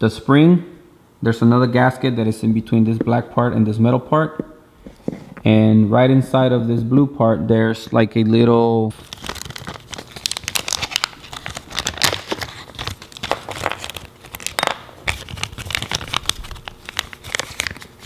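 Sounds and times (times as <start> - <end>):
plastic bag crinkling: 9.0 - 18.0.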